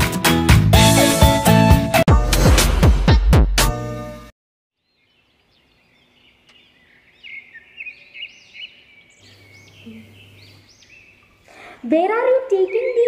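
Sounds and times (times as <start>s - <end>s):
birds chirping: 4.8s - 13.0s.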